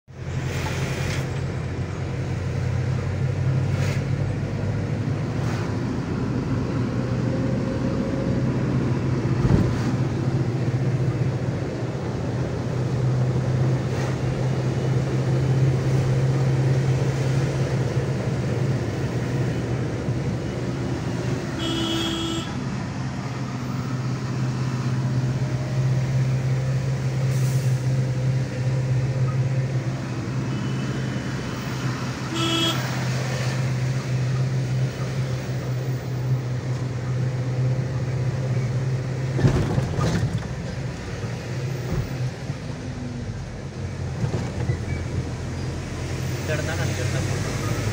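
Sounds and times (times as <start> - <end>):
heavy vehicle engine running: 0.1 - 47.9
vehicle horn toots: 21.6 - 22.6, 32.3 - 32.9.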